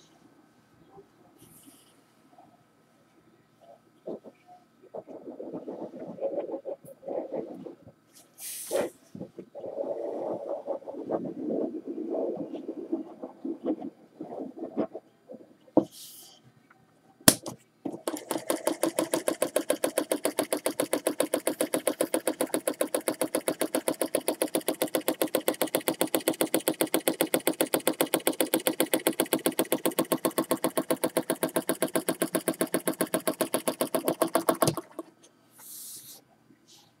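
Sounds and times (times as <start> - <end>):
solenoid engine clacking: 17.3 - 35.1.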